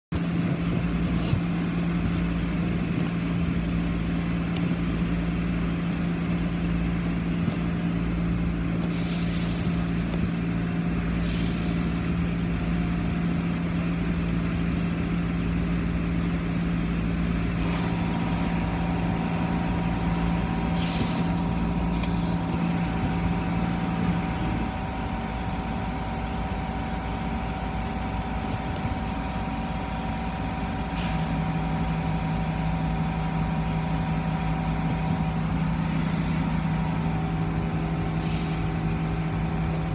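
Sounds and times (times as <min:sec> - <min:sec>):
car wash motor hum: 0:00.2 - 0:39.9
short hisses: 0:20.7 - 0:21.4.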